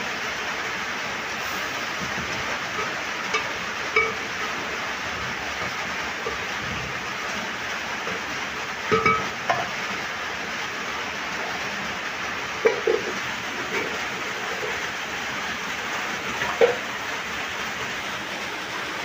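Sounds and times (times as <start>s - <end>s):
steady hiss: 0.0s - 19.0s
spoon clinking against metal pot: 3.4s - 4.2s, 8.9s - 9.3s.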